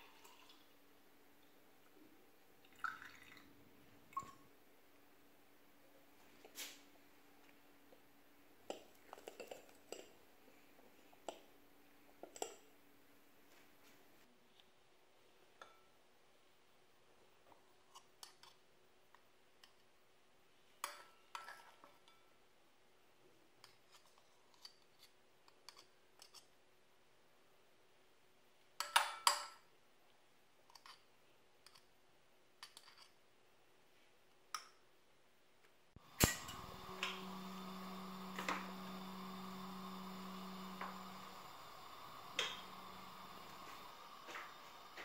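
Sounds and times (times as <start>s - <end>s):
steady hum: 36.0s - 45.0s.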